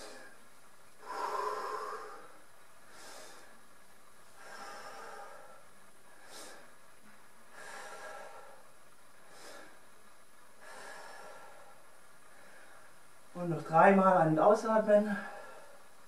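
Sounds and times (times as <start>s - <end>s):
person breathing deeply: 0.0s - 0.4s, 1.0s - 3.7s, 4.3s - 6.9s, 7.5s - 10.0s, 10.6s - 13.0s, 15.0s - 16.0s.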